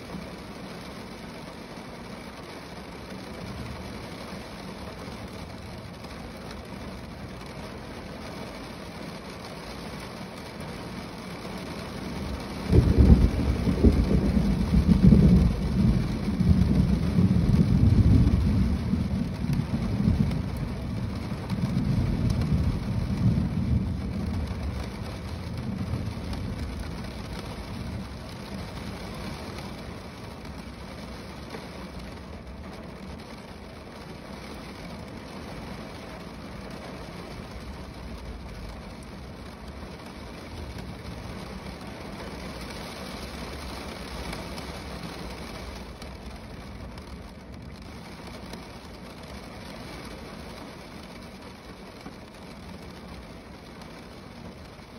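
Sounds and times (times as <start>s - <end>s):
rain drumming on car roof: 0.0s - 54.9s
deep rumble: 12.7s - 30.6s.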